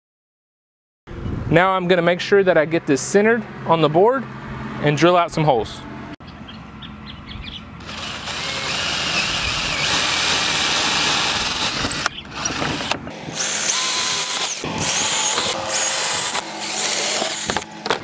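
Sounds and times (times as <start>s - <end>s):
cordless drill whining: 7.8s - 18.0s.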